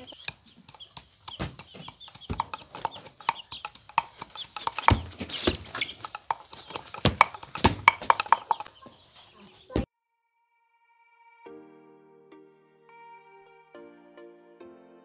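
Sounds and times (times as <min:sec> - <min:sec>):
pestle pounding in wooden mortar: 0:00.2 - 0:08.8.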